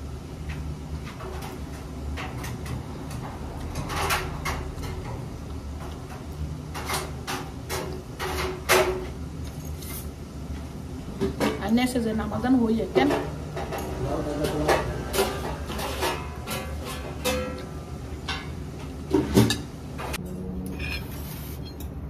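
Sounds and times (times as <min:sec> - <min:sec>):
fork scraping on ceramic plate: 0:20.7 - 0:21.9.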